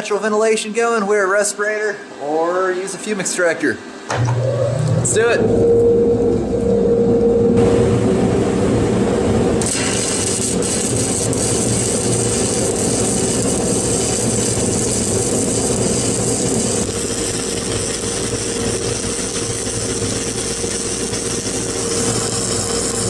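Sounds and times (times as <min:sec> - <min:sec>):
machine hum: 0:02.0 - 0:23.0
welding arc crackling and hissing: 0:09.6 - 0:23.0.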